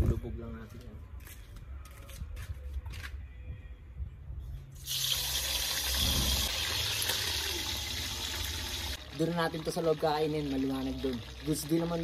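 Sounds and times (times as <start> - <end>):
chicken sizzling in hot oil: 4.8 - 12.0.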